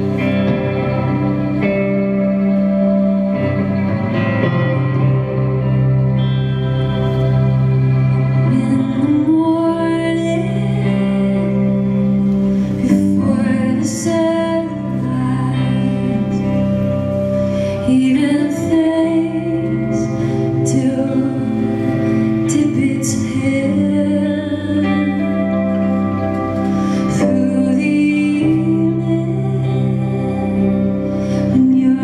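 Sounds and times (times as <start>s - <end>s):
woman singing: 8.4s - 17.0s, 17.6s - 32.0s.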